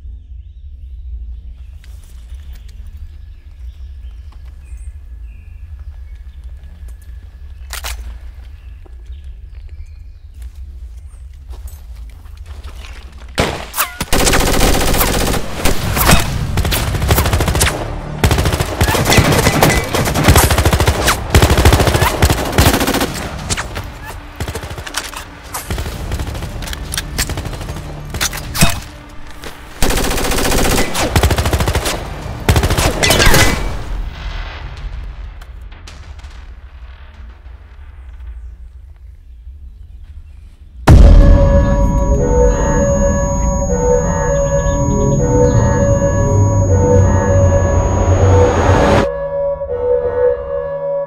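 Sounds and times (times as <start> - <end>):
automatic gunfire bursts: 14.0 - 16.0
low drone: 40.9 - 51.0.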